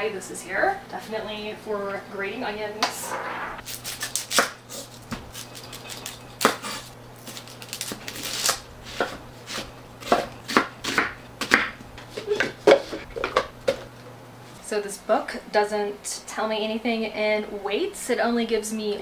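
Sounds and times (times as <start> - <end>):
knife slicing onion: 3.6 - 12.9.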